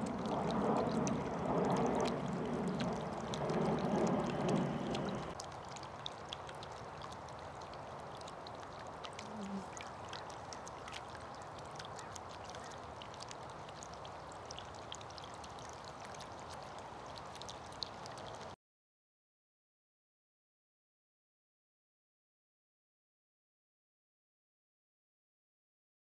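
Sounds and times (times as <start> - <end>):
water ticks and drips: 0.0 - 18.6
water trickling in bird bath: 0.0 - 18.6.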